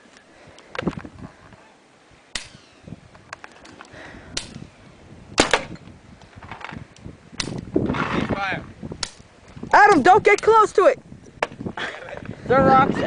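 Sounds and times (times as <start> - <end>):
sharp cracks: 2.3 - 3.6, 4.3 - 4.6, 5.4 - 8.2, 9.0 - 9.3.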